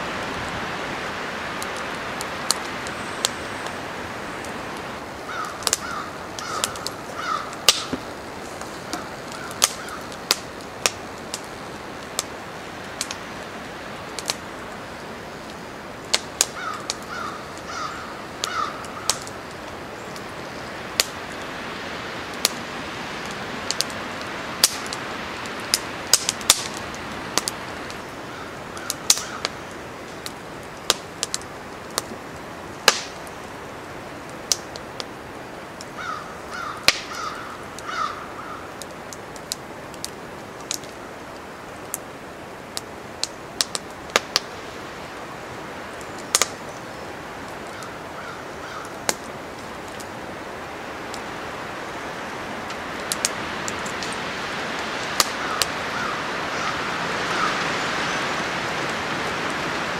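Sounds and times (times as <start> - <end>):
fire crackling and popping: 0.0 - 59.9
wind: 0.0 - 59.9
crow cawing: 5.2 - 7.9, 8.9 - 10.2, 16.5 - 19.4, 28.2 - 29.6, 36.0 - 38.8, 47.7 - 49.1, 55.3 - 58.4.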